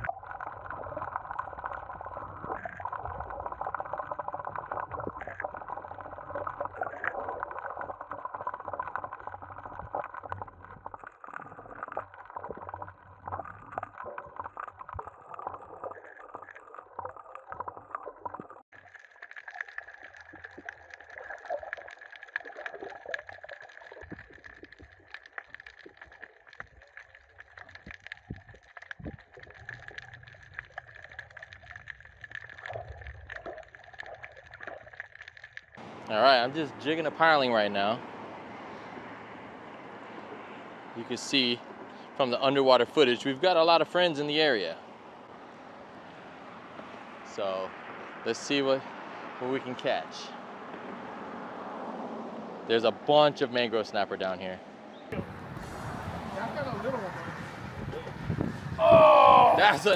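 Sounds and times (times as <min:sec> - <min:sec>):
fine crackling ticks: 0:00.0 - 0:35.8
underwater gurgling water: 0:00.0 - 0:52.0.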